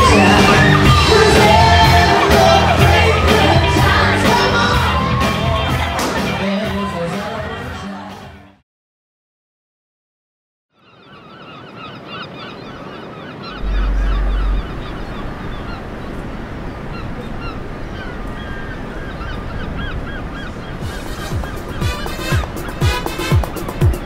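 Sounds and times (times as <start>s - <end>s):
birds calling: 10.8s - 24.0s
deep low rumble: 13.6s - 16.6s.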